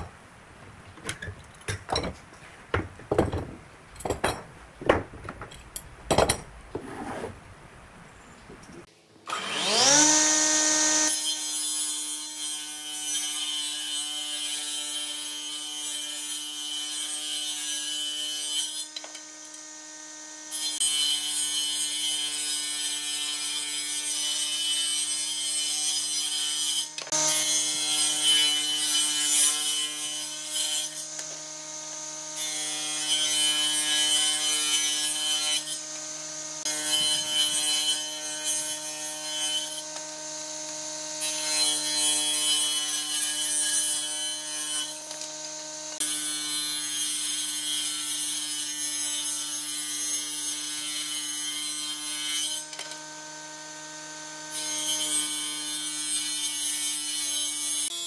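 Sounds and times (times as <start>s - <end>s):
table saw motor hum: 9.3s - 11.4s, 30.6s - 46.0s, 52.6s - 56.0s
saw blade cutting wood: 9.3s - 58.0s.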